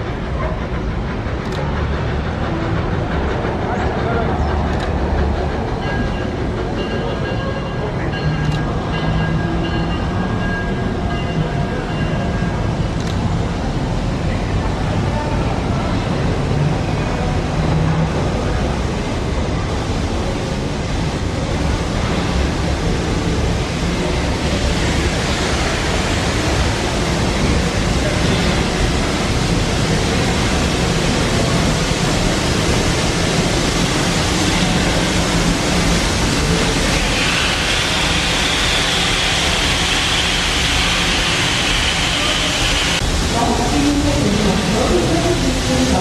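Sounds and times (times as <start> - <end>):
low rumble of train: 0.0 - 46.0
steam hissing from locomotive: 16.0 - 46.0
higher bright steam hiss: 20.2 - 46.0.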